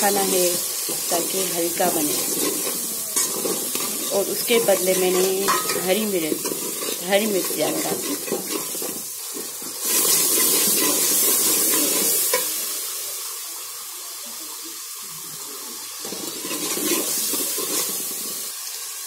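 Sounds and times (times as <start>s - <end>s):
food sizzling in oil: 0.0s - 19.0s
metal ladle scraping pot: 1.8s - 12.4s
ladle clinking against pot: 4.9s - 6.9s.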